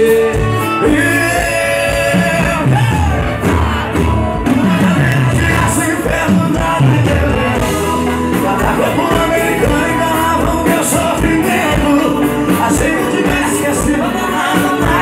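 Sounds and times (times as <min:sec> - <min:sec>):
accordion: 0:00.0 - 0:15.0
acoustic guitar: 0:00.0 - 0:15.0
drums with steady beat: 0:00.0 - 0:15.0
electric guitar: 0:00.0 - 0:15.0
person singing: 0:00.0 - 0:15.0.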